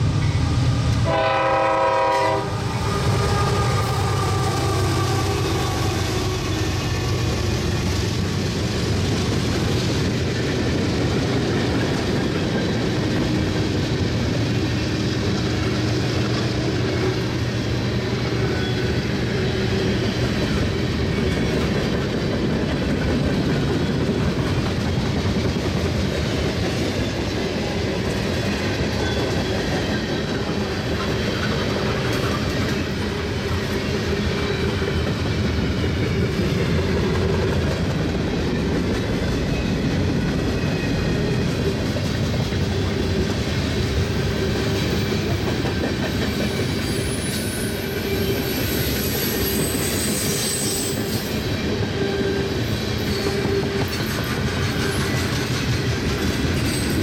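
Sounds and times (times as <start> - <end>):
freight train wheels clattering: 0.0 - 57.0
high-pitched wheel squeals: 46.4 - 54.1.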